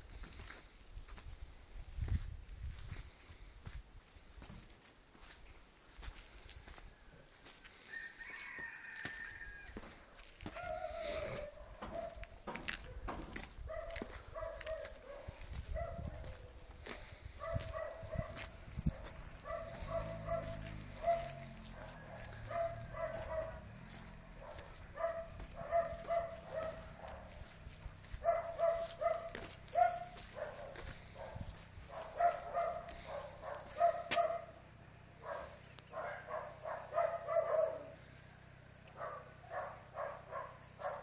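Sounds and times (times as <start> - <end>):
dog barking: 10.4 - 16.7, 17.4 - 34.6, 35.2 - 38.0, 38.9 - 41.0.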